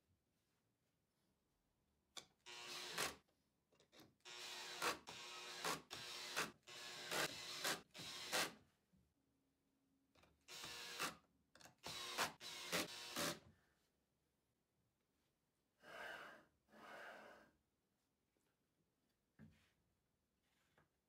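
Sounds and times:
cordless drill driving screws: 2.5 - 3.2, 4.3 - 8.5, 10.5 - 11.1, 11.8 - 13.4.

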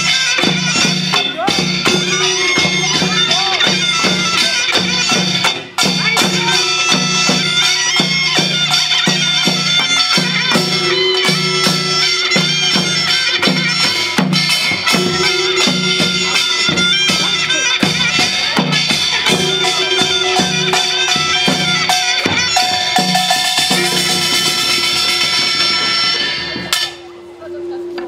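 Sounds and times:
rhythmic drum strikes: 0.0 - 27.2
reedy shawm melody: 0.0 - 28.0
gong strikes: 14.9 - 16.7, 19.3 - 25.3.

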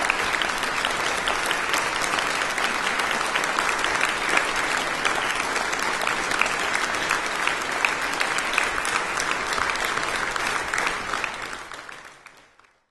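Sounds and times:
audience applauding: 0.0 - 12.9.

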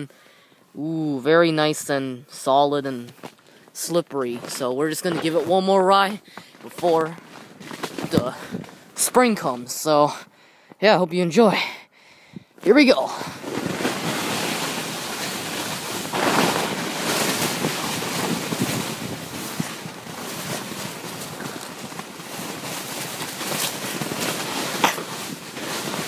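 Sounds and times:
sled sliding on snow: 13.3 - 26.0.

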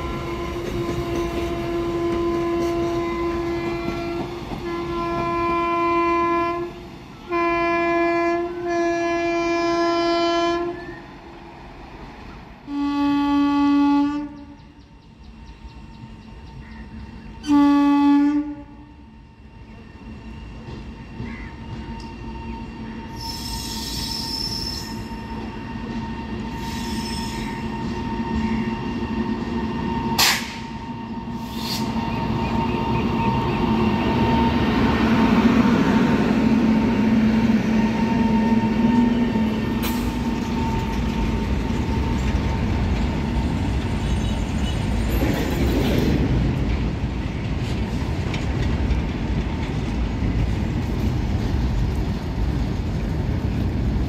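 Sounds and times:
freight train rumble: 0.0 - 54.0
train wheels squealing: 10.8 - 11.2, 19.3 - 46.2.

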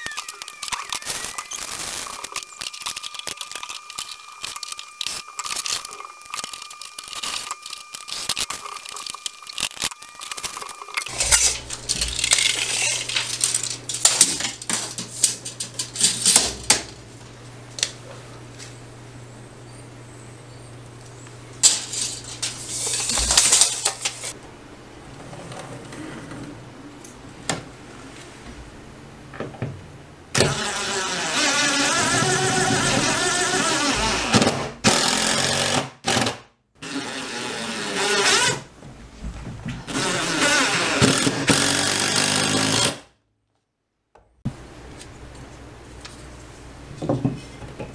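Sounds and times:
cordless drill driving screw: 39.9 - 42.9.

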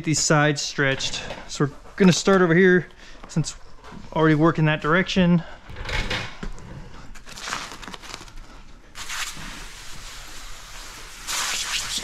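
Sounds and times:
hand sprayer hissing: 9.0 - 12.0.

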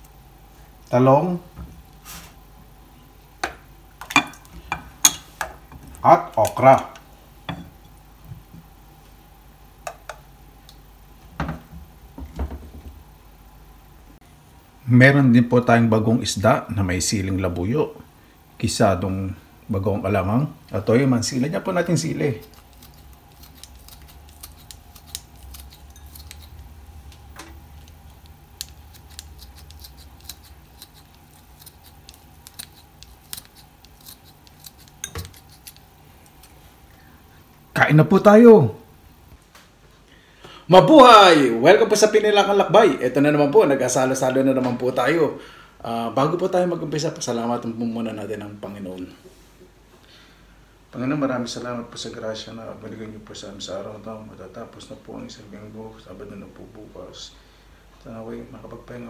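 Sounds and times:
low steady hum: 0.0 - 59.0
scissors snipping: 22.4 - 27.2, 27.8 - 36.6.

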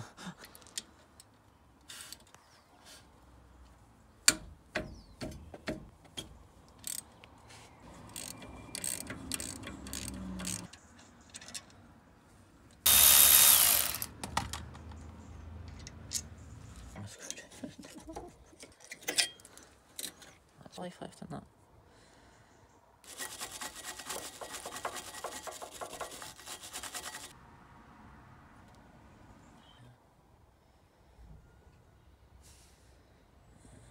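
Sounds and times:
socket ratchet clicking: 8.1 - 10.8, 12.9 - 14.1
loud hiss: 12.9 - 14.1
metal tools clinking: 18.6 - 20.4.

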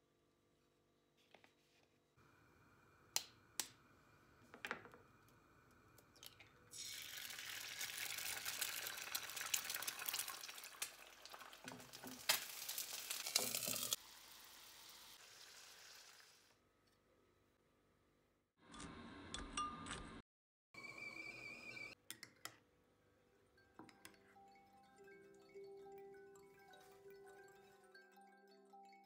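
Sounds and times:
eggs sizzling in hot oil: 5.8 - 16.6.

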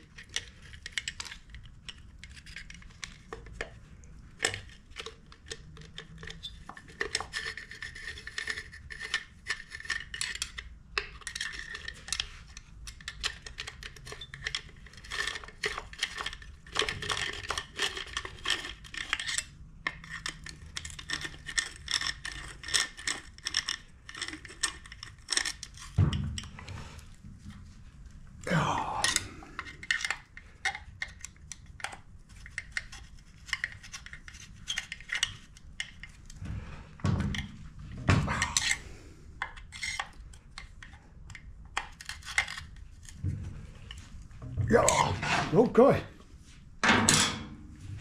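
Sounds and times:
screwdriver clicking and scraping metal: 0.0 - 3.8, 4.4 - 26.0, 29.6 - 36.4, 39.4 - 43.2.

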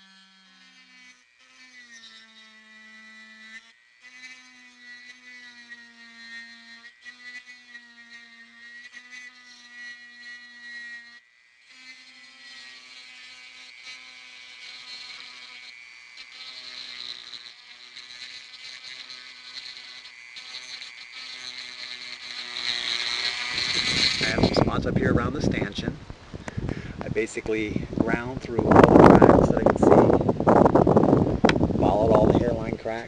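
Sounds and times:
rotary tool motor whine: 0.0 - 33.0
grinding hiss: 16.4 - 33.0.

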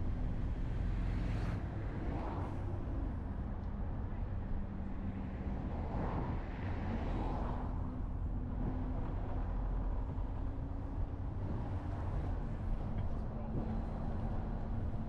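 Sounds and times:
road noise rumble: 0.0 - 15.0
vehicle engine humming: 7.8 - 15.0.

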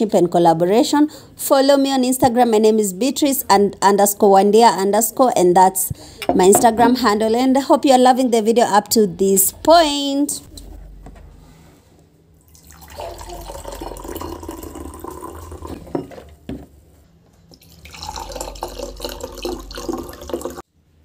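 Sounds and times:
tap water running into sink: 17.6 - 20.6.

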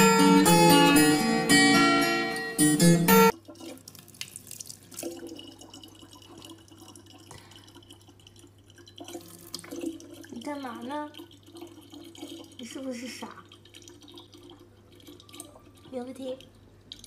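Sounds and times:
acoustic guitar music: 0.0 - 3.4
tap water running into bottle: 3.3 - 17.0.

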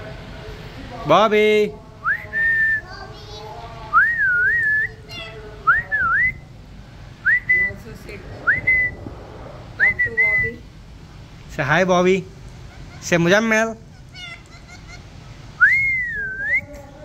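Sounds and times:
rising whistles: 7.2 - 11.1, 15.6 - 16.7.

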